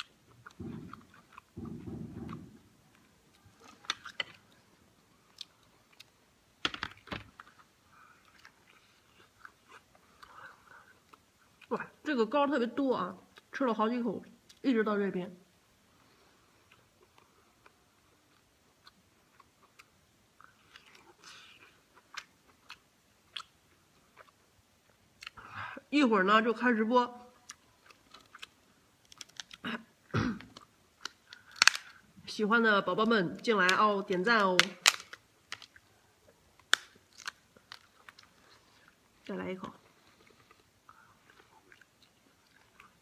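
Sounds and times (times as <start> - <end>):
chewing and mouth clicks: 7.3 - 11.7, 16.6 - 25.4, 27.4 - 29.6, 35.0 - 39.1, 39.7 - 43.0
crab shell cracking: 27.9 - 29.6, 30.6 - 32.0, 33.7 - 35.8, 36.6 - 38.3.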